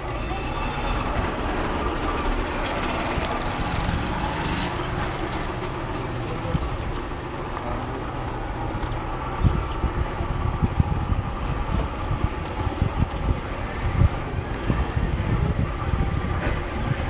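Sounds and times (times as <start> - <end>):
road rumble: 0.0 - 17.0
rapid high ticking: 1.2 - 7.1.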